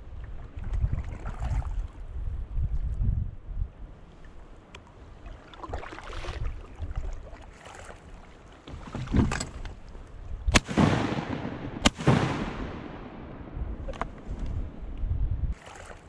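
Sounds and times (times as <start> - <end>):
paddle splashing in water: 0.2 - 2.1, 4.1 - 10.2, 13.8 - 16.0
shotgun shots with echo: 10.5 - 13.6.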